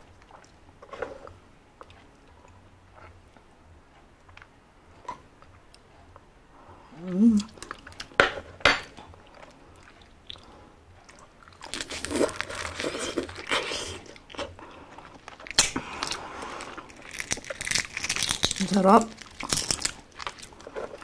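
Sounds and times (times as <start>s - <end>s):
wet biting and chewing: 9.0s - 21.0s
eggshell cracking: 15.4s - 16.2s, 16.9s - 21.0s.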